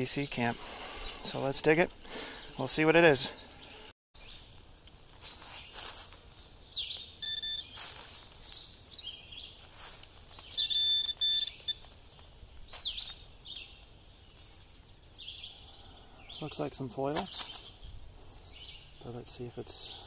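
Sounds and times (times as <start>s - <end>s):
hand scraping soil and leaves: 4.5s - 15.1s, 16.5s - 17.8s
downward-sweeping bird chirps: 6.7s - 9.6s, 10.4s - 11.9s
high-pitched detector alert tone: 7.2s - 7.7s, 10.6s - 11.8s.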